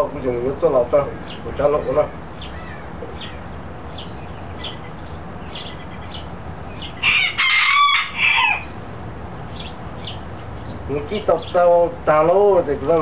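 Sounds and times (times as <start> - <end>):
high bird chirps: 1.1 - 7.4, 8.2 - 11.7
rooster crowing: 6.9 - 8.8.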